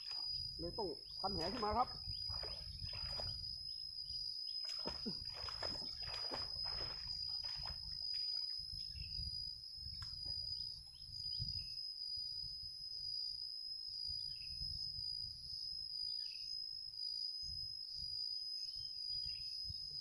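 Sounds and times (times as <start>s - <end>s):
insects whining: 0.0s - 20.0s
water splashing: 1.3s - 3.3s, 4.7s - 7.9s.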